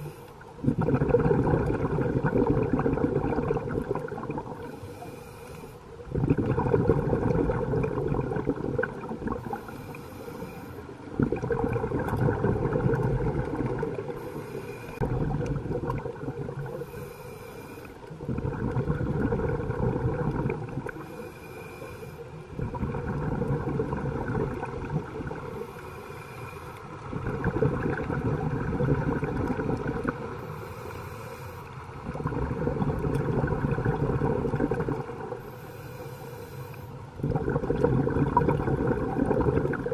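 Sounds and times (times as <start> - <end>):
rumble of exhaled bubbles: 0.0 - 5.1, 6.0 - 10.1, 11.0 - 17.1, 18.0 - 21.3, 22.4 - 25.9, 26.8 - 30.8, 31.9 - 35.9, 37.1 - 39.9
regulator inhalation hiss: 4.7 - 5.9, 9.5 - 10.9, 14.1 - 15.0, 16.7 - 18.1, 21.0 - 22.4, 25.5 - 26.9, 30.4 - 31.8, 35.4 - 37.0.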